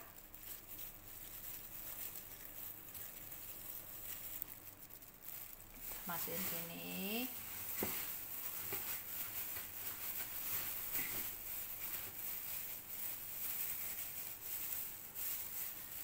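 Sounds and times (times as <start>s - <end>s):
plastic gloves rustling: 0.0s - 16.0s.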